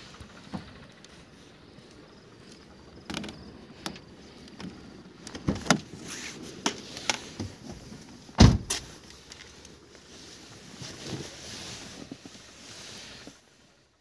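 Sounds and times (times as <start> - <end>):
car door slamming: 8.4 - 8.9.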